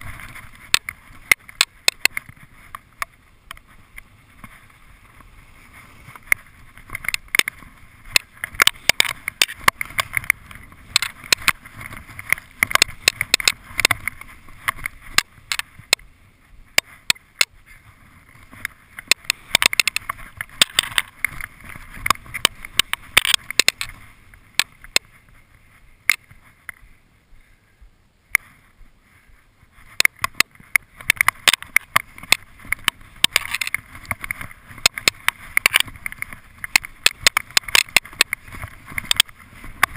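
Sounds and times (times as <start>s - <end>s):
skis hissing through snow: 2.4s - 6.8s.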